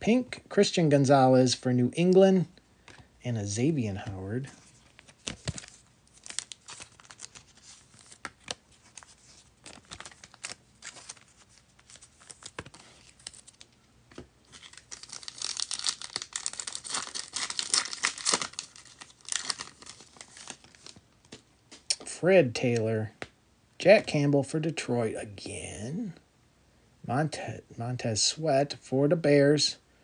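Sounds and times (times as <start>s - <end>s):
foil wrapper tearing and crinkling: 5.1s - 13.7s, 14.4s - 21.0s.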